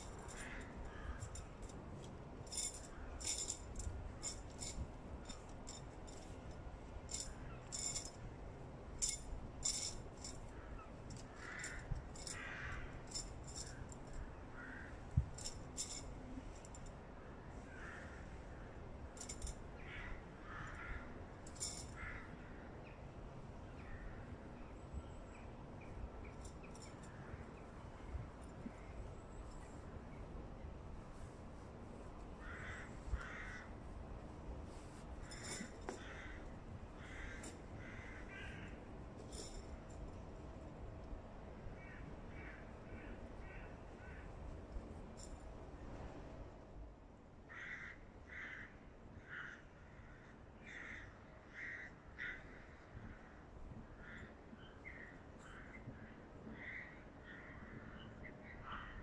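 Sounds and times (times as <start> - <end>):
gear clicks and rattles: 0.0 - 17.0, 19.0 - 19.7, 21.4 - 22.0, 26.2 - 27.4, 34.7 - 37.7, 39.1 - 40.4.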